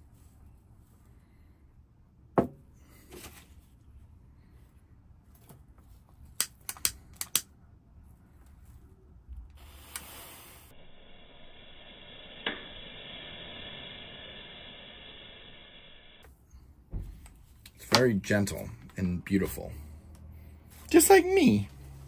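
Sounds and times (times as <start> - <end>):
lighter flame hissing: 9.6 - 16.2.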